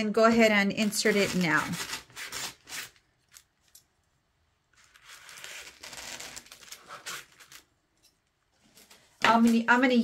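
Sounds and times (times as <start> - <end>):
scissors crunching styrofoam: 0.8 - 3.5.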